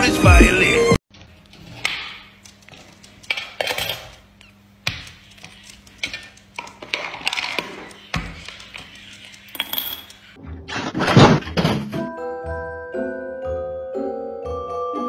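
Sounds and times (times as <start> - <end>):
coins clinking: 9.4 - 10.3
coins dropping into tin bank: 9.5 - 10.2.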